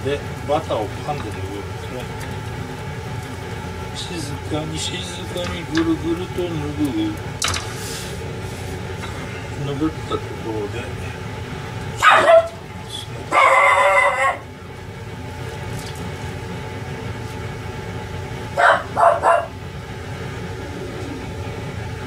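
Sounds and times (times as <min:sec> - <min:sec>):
dog barking and yipping: 0:12.0 - 0:12.6, 0:13.3 - 0:14.4, 0:18.6 - 0:19.6.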